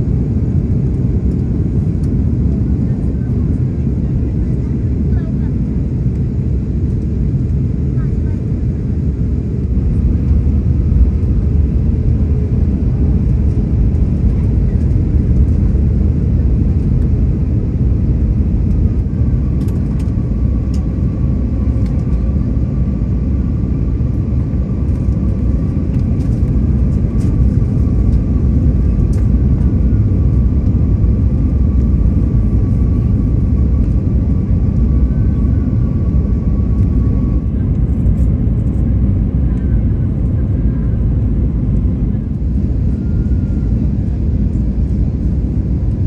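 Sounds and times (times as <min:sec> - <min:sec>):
engine and airflow rumble: 0:00.0 - 0:46.0.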